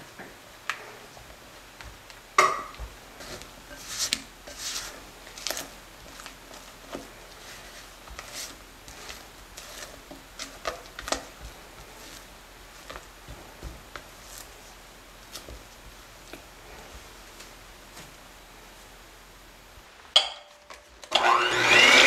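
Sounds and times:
spatula scraping glass bowl: 3.6 - 5.7.

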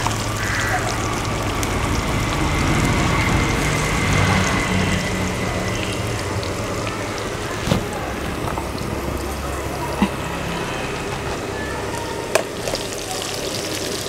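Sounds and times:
oil sizzling in a wok: 0.0 - 14.0.

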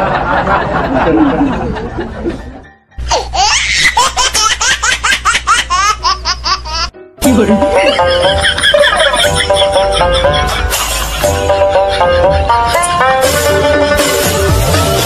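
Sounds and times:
music: 1.8 - 3.1, 6.9 - 15.0
high-pitched laughing sound effect: 3.0 - 6.9, 7.8 - 12.9.

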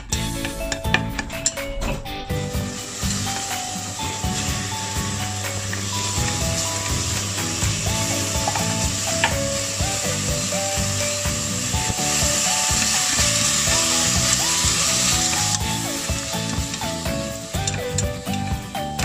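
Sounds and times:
background music: 0.0 - 19.0
meat sizzling in hot oil: 2.6 - 18.7.

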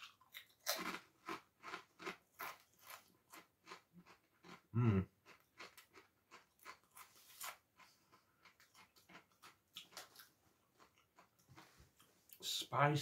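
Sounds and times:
person chewing crunchy crisps: 0.0 - 12.1.

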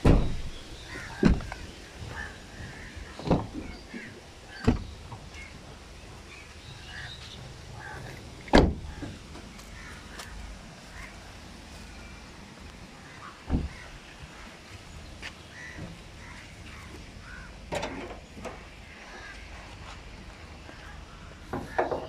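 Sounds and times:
car door shutting: 0.0 - 1.7, 3.1 - 5.0, 8.5 - 9.5, 13.5 - 13.9
crows cawing: 0.9 - 4.6, 7.8 - 8.2, 8.9 - 11.2, 13.0 - 14.0, 15.5 - 17.6.

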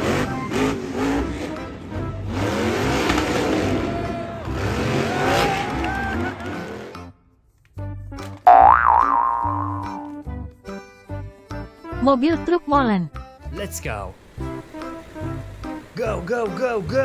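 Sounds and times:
truck engine revving hard: 0.0 - 7.1.

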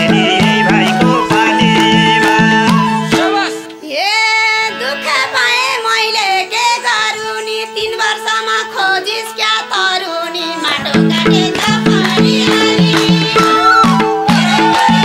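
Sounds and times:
madal drums: 0.0 - 3.4, 10.8 - 15.0
keyboard: 0.0 - 3.8
flute: 0.0 - 4.2, 13.4 - 15.0
person singing: 0.0 - 15.0.

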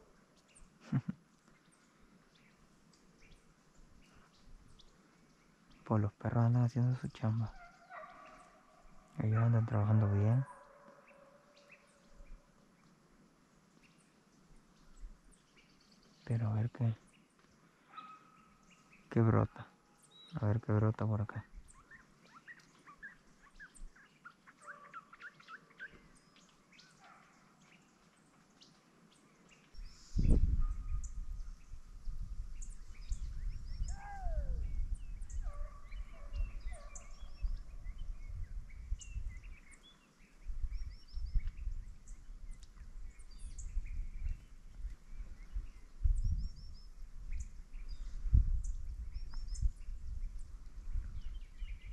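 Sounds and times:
birds chirping: 0.0 - 51.9
fluttering low rumble on microphone: 29.8 - 39.5, 40.4 - 51.9.

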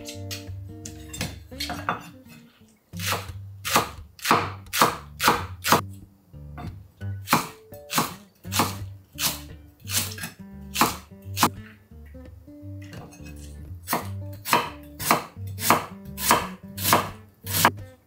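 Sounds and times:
background music: 0.0 - 18.0
knife chopping on wooden board: 3.0 - 5.8, 7.3 - 11.6, 13.9 - 17.8.

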